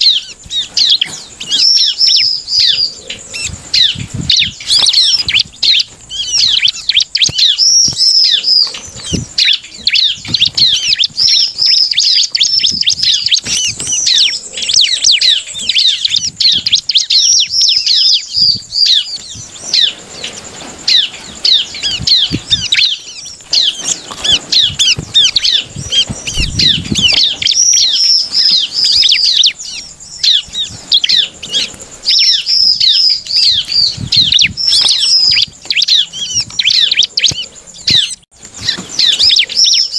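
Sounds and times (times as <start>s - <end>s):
bird singing chattering song: 0.0s - 39.9s
bird wings fluttering: 3.4s - 14.5s, 18.4s - 29.6s, 33.0s - 39.7s.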